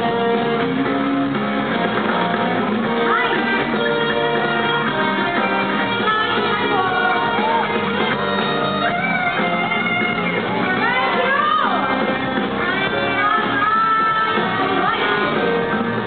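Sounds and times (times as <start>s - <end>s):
guitar: 0.0s - 16.0s
live band with singer: 0.0s - 16.0s.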